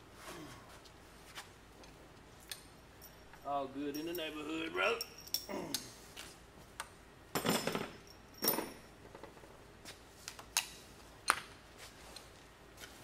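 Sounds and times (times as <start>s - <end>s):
wrench clinking on metal: 4.9s - 5.8s.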